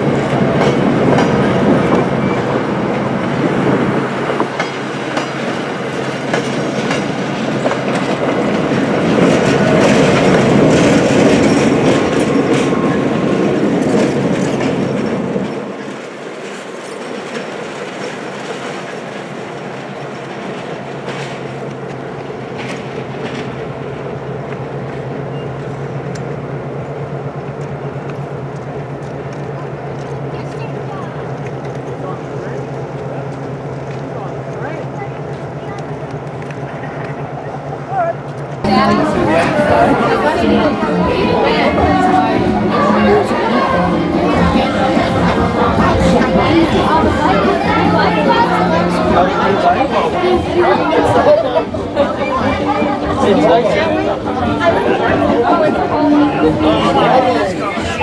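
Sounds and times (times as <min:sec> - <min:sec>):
train wheels clicking over rail joints: 0:00.0 - 0:38.7
diesel locomotive passing: 0:00.0 - 0:58.0.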